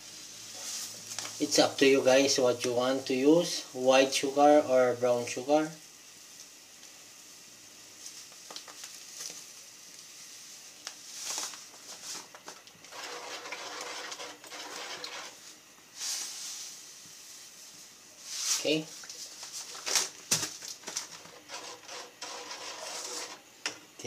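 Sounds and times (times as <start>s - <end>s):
metal ladle stirring a pot: 12.9s - 15.4s, 21.3s - 23.4s.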